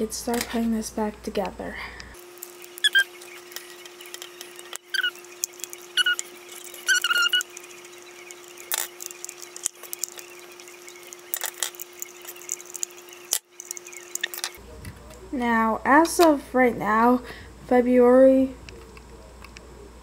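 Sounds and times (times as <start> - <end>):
steady hum: 0.0 - 20.0
plastic clicks and rustles: 2.4 - 14.6
plastic squeaks: 2.5 - 14.6.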